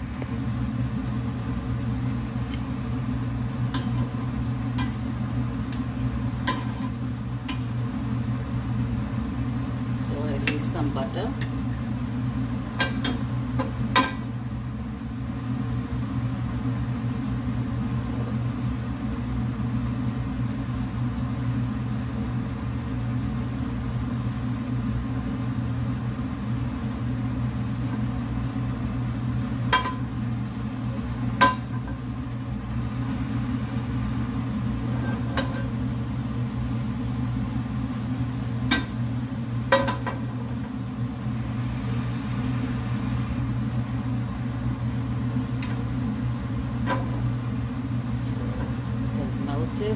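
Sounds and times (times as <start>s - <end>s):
low mechanical hum: 0.0s - 49.9s
frying pan knocking on stove grate: 29.7s - 30.1s, 39.7s - 40.2s.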